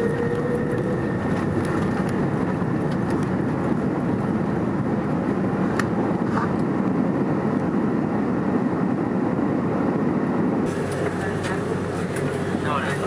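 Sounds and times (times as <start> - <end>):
jet cabin rumble: 0.0 - 13.0.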